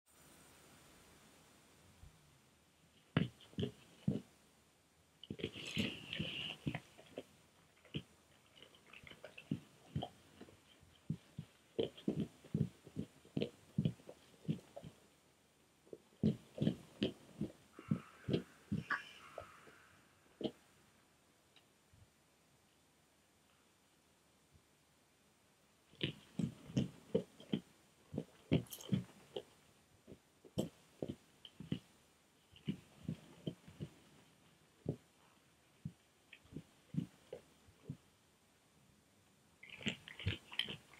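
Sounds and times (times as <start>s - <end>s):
bear chewing and crunching food: 3.0s - 4.3s, 5.2s - 15.1s, 15.8s - 19.8s, 25.9s - 38.1s, 39.6s - 40.9s.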